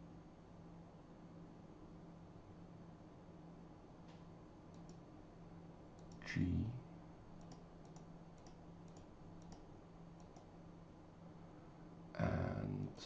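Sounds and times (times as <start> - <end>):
low electrical hum: 0.0 - 13.0
computer mouse clicking: 4.7 - 5.1, 6.0 - 6.3, 7.4 - 10.5.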